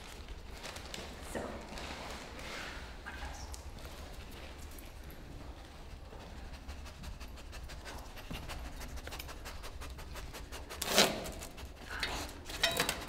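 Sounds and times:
dog sniffing: 5.9 - 12.5.

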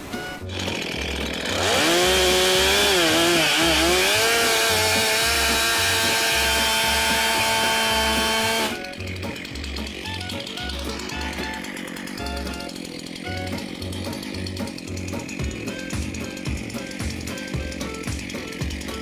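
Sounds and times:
chainsaw cutting wood: 0.0 - 19.0
background music with beat: 5.0 - 19.0.

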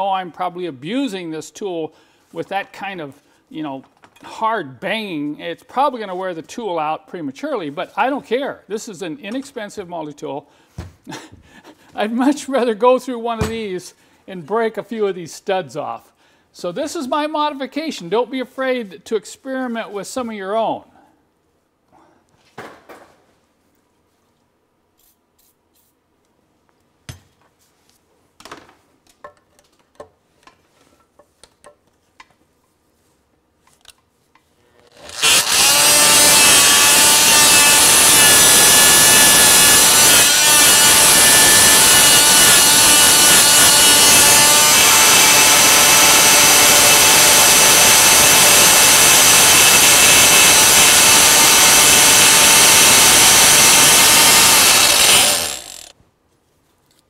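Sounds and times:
oscillating multi-tool running: 35.0 - 55.9.

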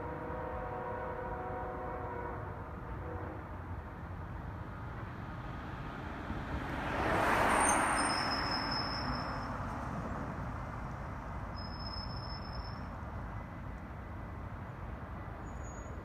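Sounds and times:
car passing by: 5.2 - 11.3.

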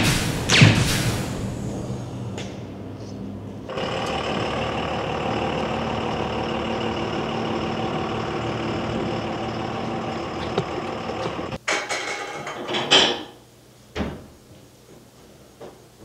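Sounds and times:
vehicle engine running: 1.0 - 11.6
city street traffic: 1.2 - 11.6.

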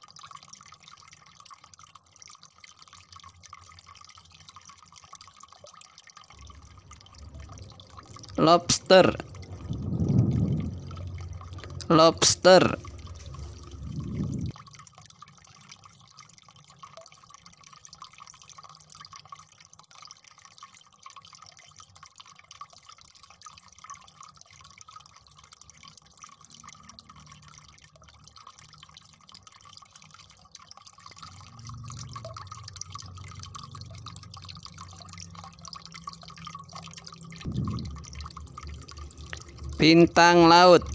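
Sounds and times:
wet ticking and dripping: 0.0 - 14.6, 24.4 - 40.9
low hum: 6.4 - 14.5, 31.2 - 36.2, 37.0 - 40.9.

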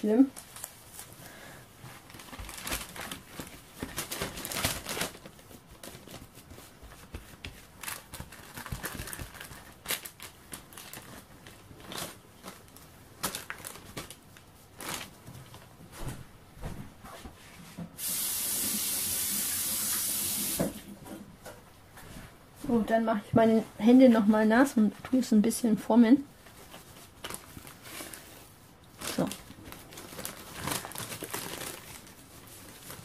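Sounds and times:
baking paper crinkling: 0.0 - 15.8, 24.1 - 33.0.

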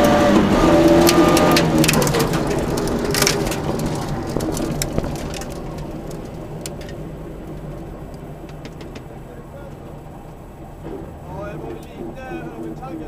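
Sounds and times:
car engine low hum: 0.0 - 13.0
stones clattering against underbody: 0.9 - 7.8.

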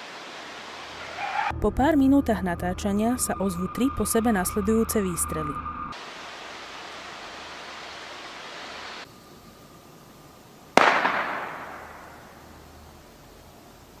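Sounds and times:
gunshot echoing: 10.8 - 12.5.

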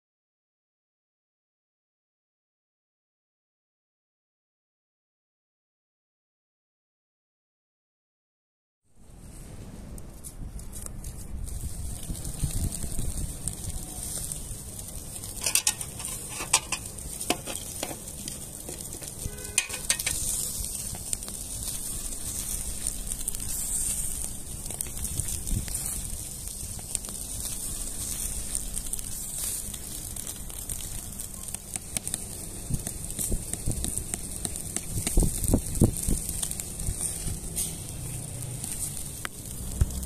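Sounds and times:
kebabs sizzling over charcoal: 8.9 - 40.0.

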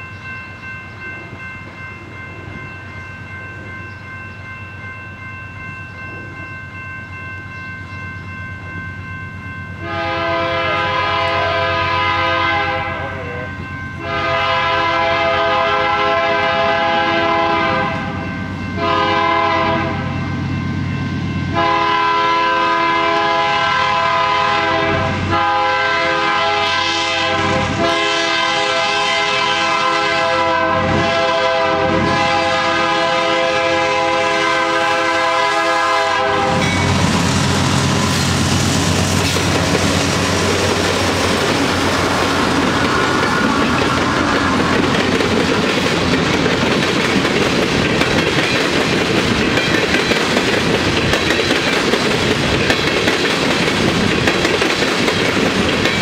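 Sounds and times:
train rumble: 0.0 - 56.0
locomotive air horn blasts: 9.8 - 13.4, 14.0 - 18.2, 18.8 - 20.1, 21.5 - 37.1.

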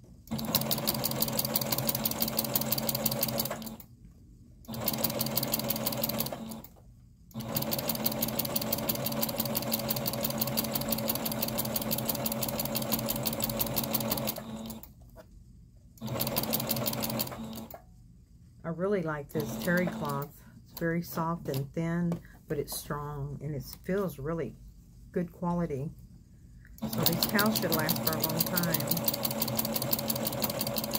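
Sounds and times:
electric sewing machine stitching: 0.3 - 3.9, 4.7 - 14.9, 16.0 - 17.8, 19.4 - 20.3, 26.8 - 30.9.

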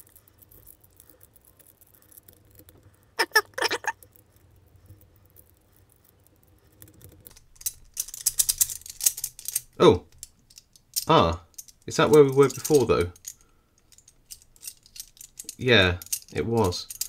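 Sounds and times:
metal puzzle pieces clicking: 0.0 - 17.0
squeaky chirps: 3.2 - 4.0.

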